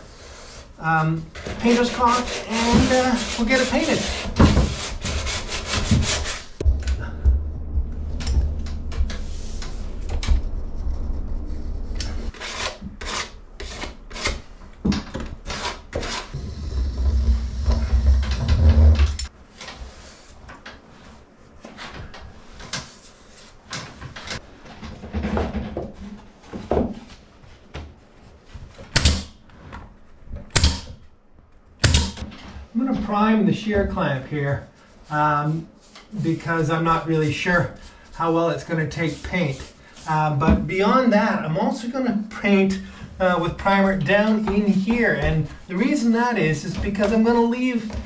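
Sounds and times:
hand scraping on wood: 0:01.5 - 0:06.7.

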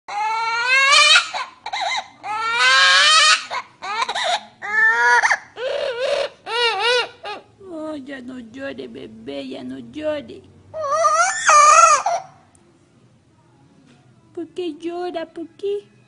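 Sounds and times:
parrot wailing like a crying baby: 0:00.1 - 0:07.5, 0:10.7 - 0:12.5.

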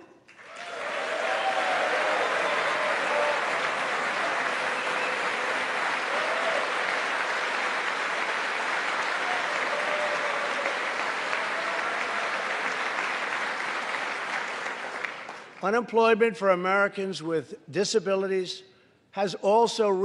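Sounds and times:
large crowd applauding: 0:00.0 - 0:15.7.

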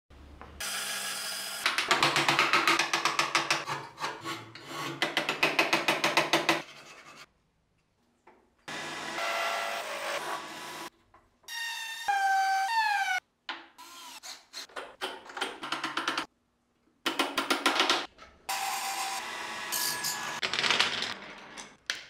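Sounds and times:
hand tool scraping wood: 0:03.6 - 0:05.3.

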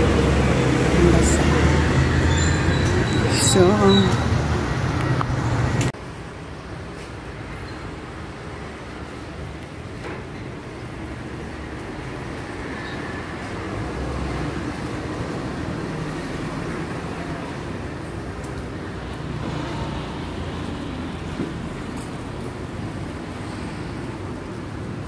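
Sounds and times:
passing vehicles rumble: 0:00.0 - 0:25.0.

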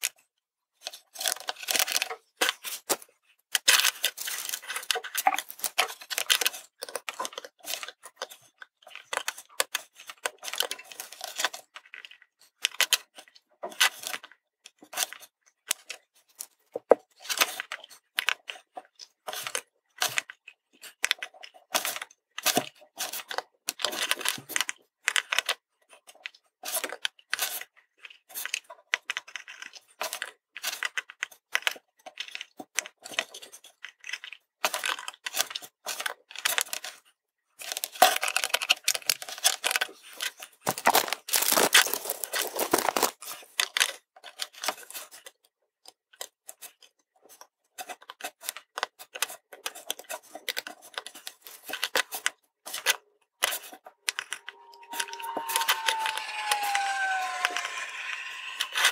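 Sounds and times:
plastic component tape rustling: 0:00.8 - 0:45.4, 0:46.1 - 0:58.9.

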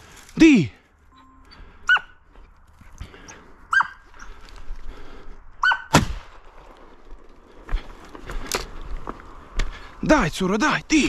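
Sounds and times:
dog yelping: 0:01.8 - 0:02.2, 0:03.7 - 0:04.1, 0:05.6 - 0:05.9
shotgun blast with low boom: 0:05.9 - 0:06.8.

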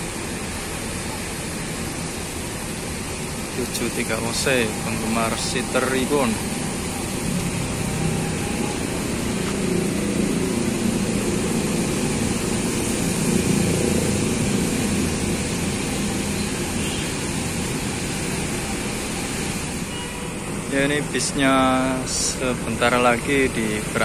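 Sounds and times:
bus diesel engine idling: 0:00.0 - 0:24.0.

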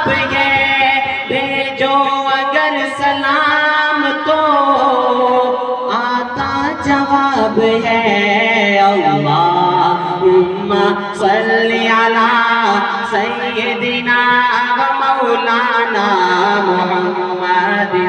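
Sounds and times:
man singing into a microphone: 0:00.0 - 0:18.0.

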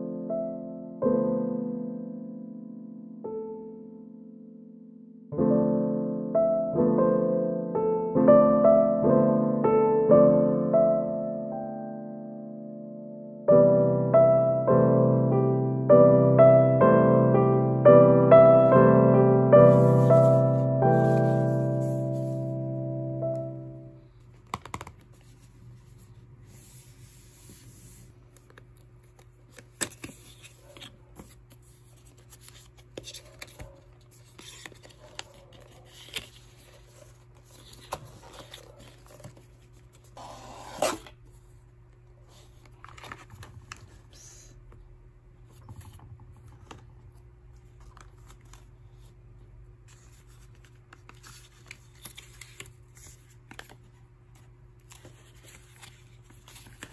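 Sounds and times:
paper rustling: 0:19.5 - 0:22.7, 0:24.2 - 0:40.2, 0:42.3 - 0:44.1, 0:45.6 - 0:49.2, 0:49.8 - 0:56.9.

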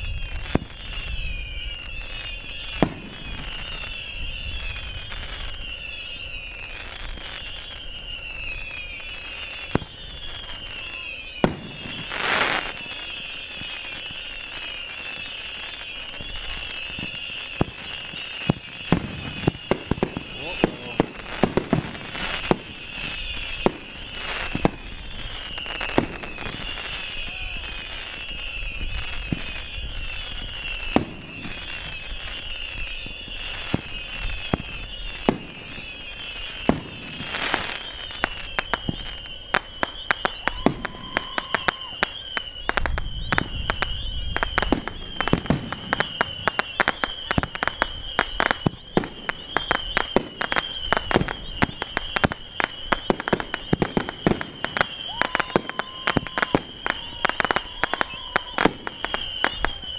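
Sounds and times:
fireworks popping and crackling: 0:00.0 - 0:59.9.

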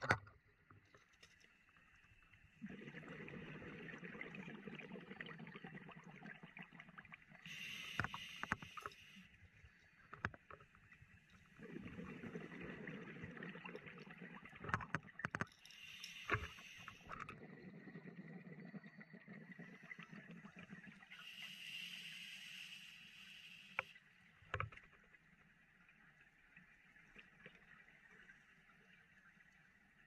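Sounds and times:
diver breathing through regulator: 0:07.5 - 0:09.2.

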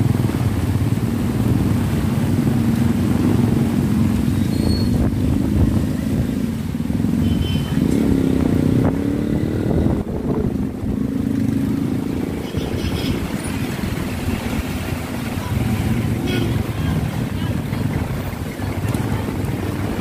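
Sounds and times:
heavy rain on an umbrella: 0:00.0 - 0:04.4.

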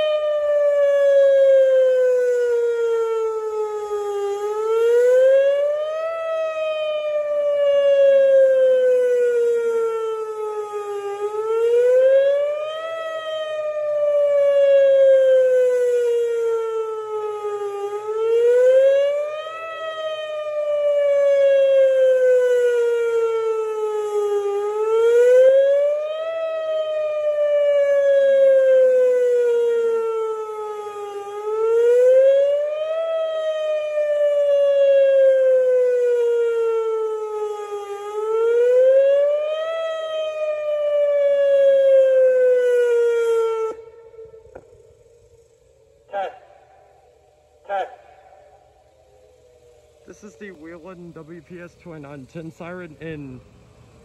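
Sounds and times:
warning siren wailing: 0:00.0 - 0:54.0.

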